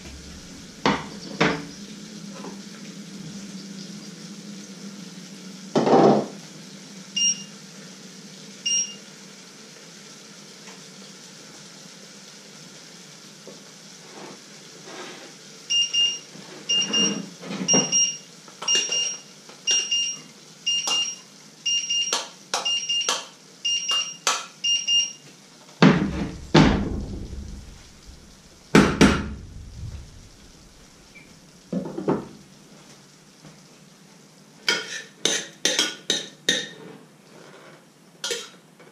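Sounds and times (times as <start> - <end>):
appliance electronic beeps: 7.2 - 7.6, 8.7 - 9.0, 15.7 - 25.2
heavy pot thumps: 25.8 - 30.7
steel pot and utensils clinking: 38.2 - 38.6.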